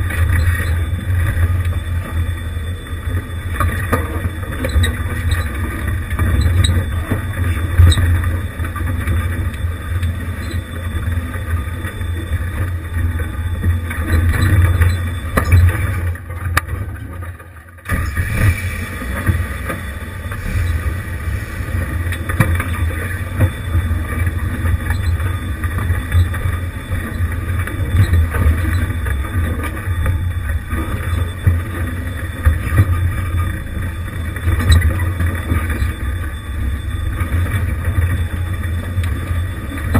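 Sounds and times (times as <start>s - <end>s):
engine and drivetrain rumble: 0.0s - 39.9s
knocks and rattles over rock: 3.5s - 18.3s.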